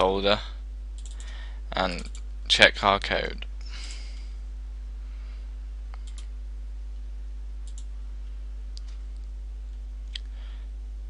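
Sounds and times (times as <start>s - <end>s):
low electrical hum: 0.0s - 11.0s
computer mouse clicking: 1.0s - 1.3s, 6.0s - 6.3s, 7.6s - 7.9s.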